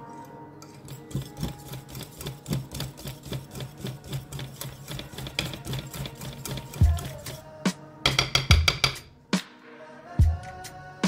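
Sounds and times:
whisk clattering against bowl: 0:00.8 - 0:09.1.

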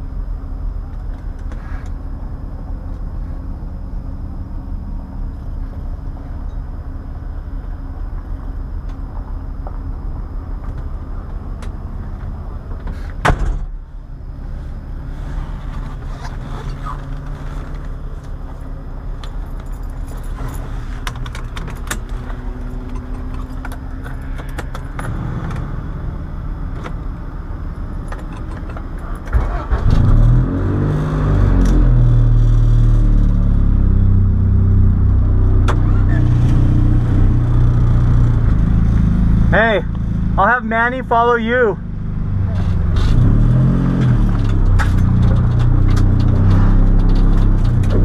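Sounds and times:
car engine idling: 0:00.0 - 0:30.0, 0:32.2 - 0:43.2
sharp thump: 0:13.2 - 0:13.7
seatbelt buckle and keys jingling: 0:19.2 - 0:25.2, 0:28.0 - 0:29.3
engine revving: 0:24.4 - 0:26.8, 0:29.3 - 0:40.4, 0:41.8 - 0:48.0.

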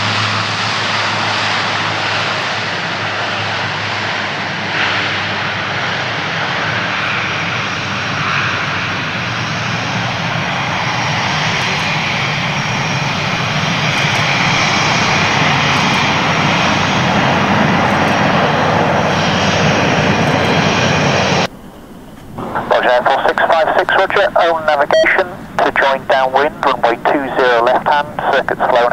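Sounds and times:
turboprop engines drone: 0:00.0 - 0:28.9
faint high whine: 0:20.0 - 0:28.9.

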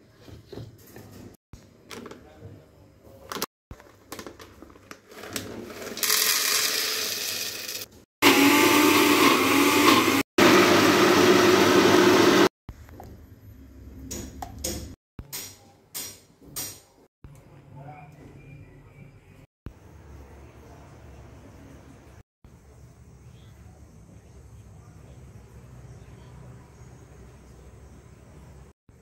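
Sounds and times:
electric blender grinding: 0:05.2 - 0:12.5.

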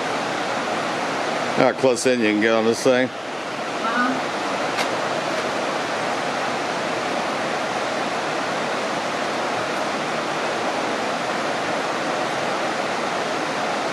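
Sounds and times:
waterfall rushing: 0:00.0 - 0:13.9.

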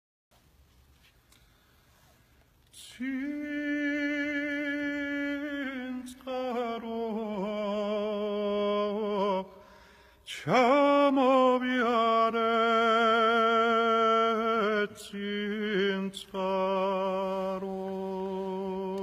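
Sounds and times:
quick breath: 0:09.5 - 0:10.3.

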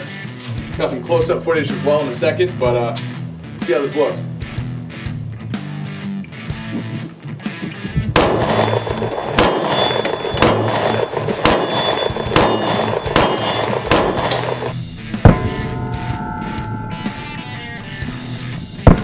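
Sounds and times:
guitar music: 0:04.2 - 0:19.0
pistol shots: 0:08.1 - 0:15.6
steel plate ringing: 0:08.2 - 0:18.6.

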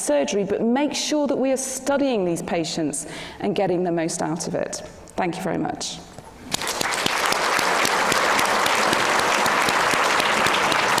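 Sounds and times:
audience applauding: 0:06.5 - 0:11.0.

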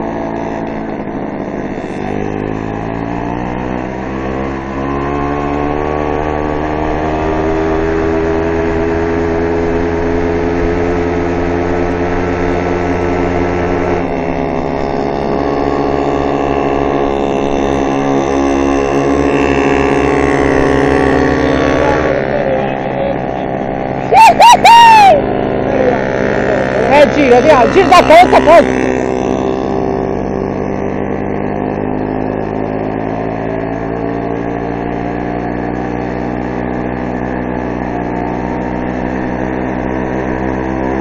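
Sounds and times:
choppy low rumble: 0:00.0 - 0:04.7, 0:07.8 - 0:41.0
moped engine revving high: 0:00.0 - 0:41.0.

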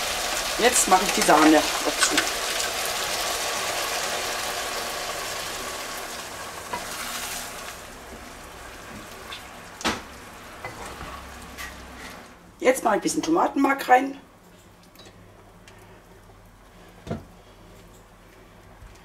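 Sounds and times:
food sizzling in frying pan: 0:00.0 - 0:12.3.

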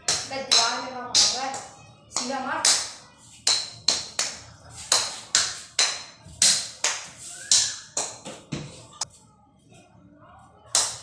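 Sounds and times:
toy racket hitting ball: 0:00.0 - 0:08.7.

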